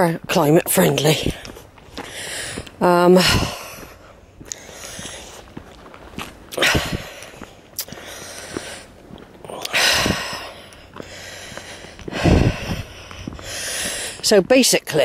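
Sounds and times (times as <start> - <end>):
faint footstep clicks: 0.2 - 15.0
loud breathing: 2.0 - 5.5, 6.5 - 14.2.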